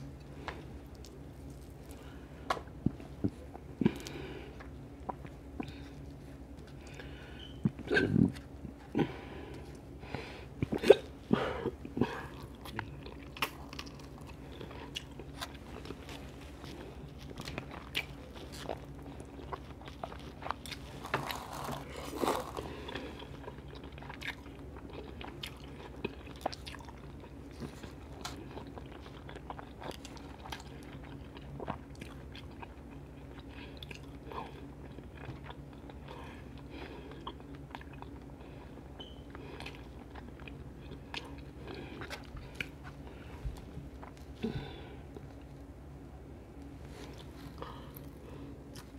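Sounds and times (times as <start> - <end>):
steady low hum: 0.0 - 48.9
wet chewing and smacking: 11.6 - 44.4.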